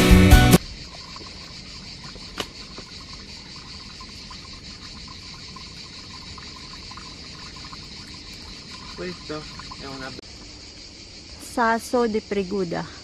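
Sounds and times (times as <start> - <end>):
background music: 0.0 - 0.6
insects chirring: 0.6 - 13.0.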